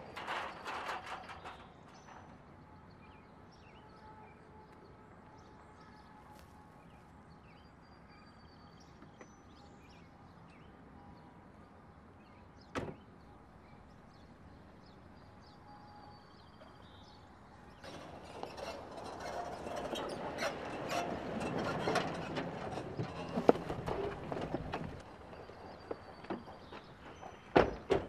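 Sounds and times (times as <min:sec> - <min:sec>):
vehicles rolling on gravel: 0:00.0 - 0:03.8, 0:16.7 - 0:28.0
faint birdsong: 0:00.1 - 0:28.0.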